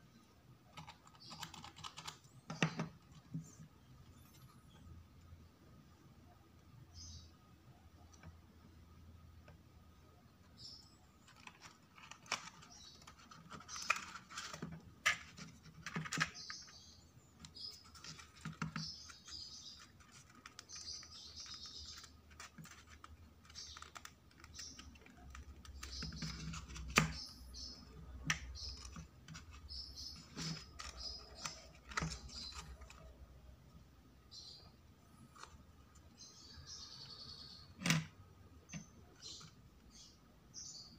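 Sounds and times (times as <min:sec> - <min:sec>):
paper parts clicking and scratching: 0:00.7 - 0:04.5, 0:11.2 - 0:33.2.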